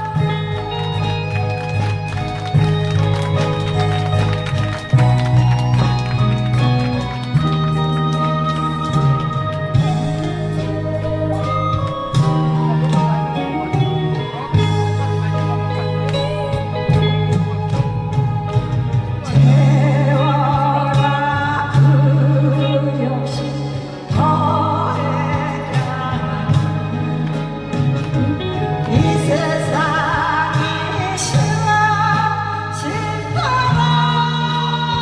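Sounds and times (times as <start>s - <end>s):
backing track bass line: 0.0s - 35.0s
person singing: 9.2s - 35.0s.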